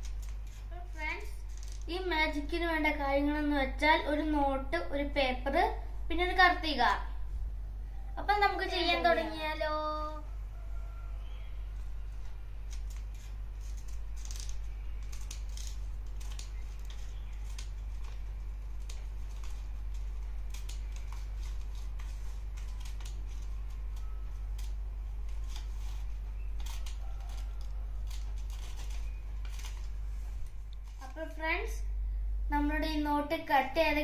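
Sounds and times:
steady low hum: 0:00.0 - 0:34.0
scissors snipping paper: 0:12.7 - 0:30.0.

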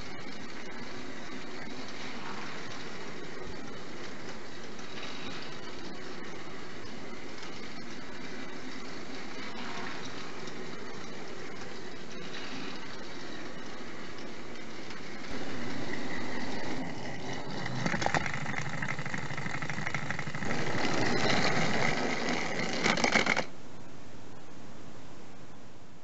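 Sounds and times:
toy train whirring on track: 0:00.0 - 0:23.6
rattling clicks: 0:14.2 - 0:23.5.

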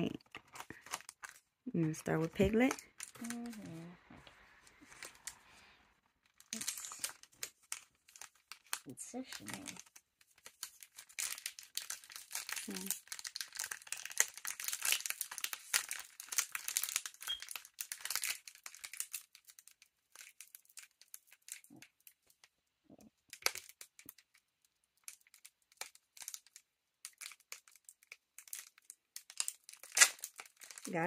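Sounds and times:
wrapper crinkling and tearing: 0:00.0 - 0:22.5, 0:23.1 - 0:31.0.

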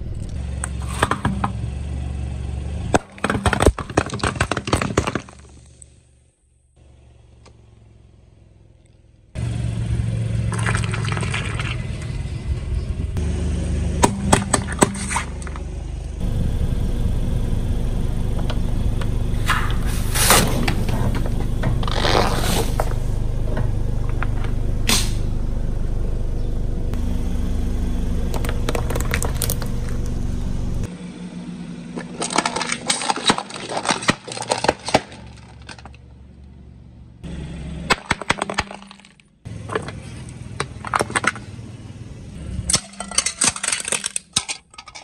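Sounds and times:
car tyre rumbling: 0:00.0 - 0:45.0
brittle plastic shattering: 0:03.0 - 0:05.8, 0:28.3 - 0:30.0, 0:32.0 - 0:36.0, 0:37.9 - 0:39.3, 0:42.7 - 0:45.0
plastic cups crackling and snapping: 0:03.0 - 0:05.9, 0:10.5 - 0:12.1, 0:28.3 - 0:30.1, 0:32.0 - 0:36.0, 0:42.7 - 0:45.0
tyre crushing foamy mush: 0:19.4 - 0:23.1.

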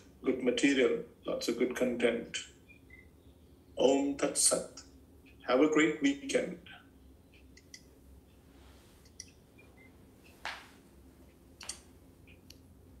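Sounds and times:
soft clicks: 0:07.3 - 0:07.9, 0:09.0 - 0:12.7
clothing and mat rustling: 0:10.3 - 0:10.9.

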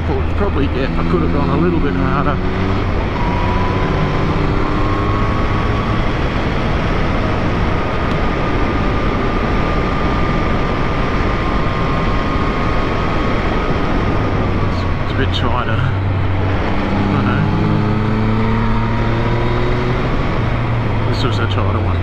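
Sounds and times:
wind rush on microphone: 0:02.2 - 0:22.0.

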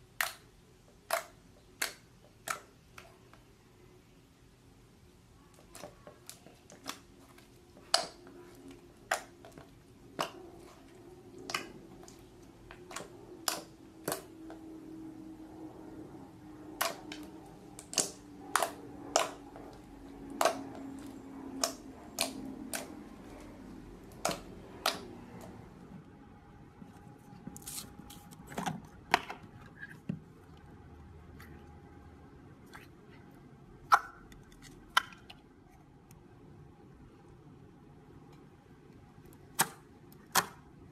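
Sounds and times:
slime clicking and popping: 0:00.2 - 0:03.1, 0:12.8 - 0:14.3, 0:16.8 - 0:23.0, 0:24.1 - 0:25.1.

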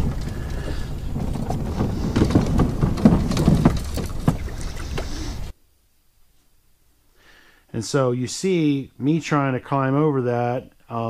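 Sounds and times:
steady low rumble: 0:00.0 - 0:05.5.

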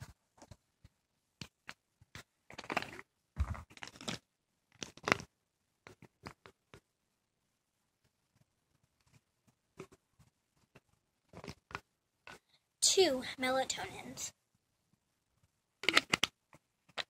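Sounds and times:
plastic bottle clicks and scrapes: 0:01.4 - 0:06.8, 0:10.7 - 0:12.4, 0:15.8 - 0:17.0.

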